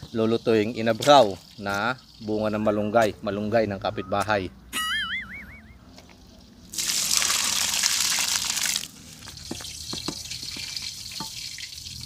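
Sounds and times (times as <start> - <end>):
fish frying in oil: 0.0 - 2.9, 6.7 - 12.0
spatula tapping pan: 9.4 - 11.4.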